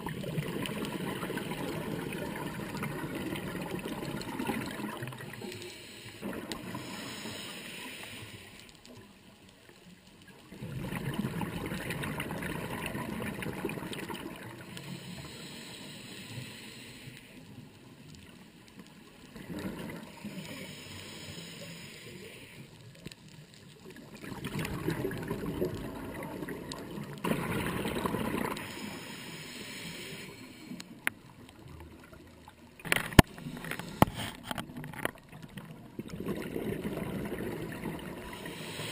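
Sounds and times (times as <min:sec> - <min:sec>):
bubbles gurgling: 0:00.0 - 0:05.5, 0:06.2 - 0:06.9, 0:10.4 - 0:14.6, 0:19.3 - 0:20.4, 0:23.8 - 0:28.8, 0:31.6 - 0:38.9
diver breathing through regulator: 0:05.3 - 0:08.8, 0:14.6 - 0:17.5, 0:20.0 - 0:22.8, 0:28.4 - 0:31.0, 0:33.0 - 0:34.6, 0:38.2 - 0:38.9.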